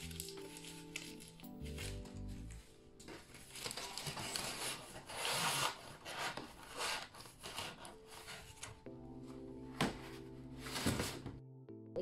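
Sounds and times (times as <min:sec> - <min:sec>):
cardboard sliding across paper: 0:04.1 - 0:08.7.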